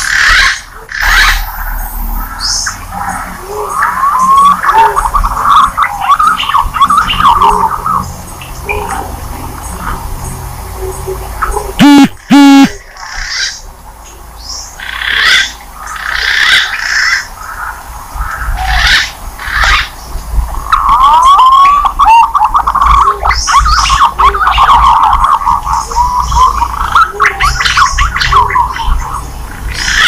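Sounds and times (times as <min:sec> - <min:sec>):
pigeon calls rasping notes: 0:00.0 - 0:08.0, 0:10.8 - 0:13.5
pigeons whistling calls: 0:11.4 - 0:12.8, 0:21.3 - 0:30.0
low hum: 0:11.8 - 0:12.8.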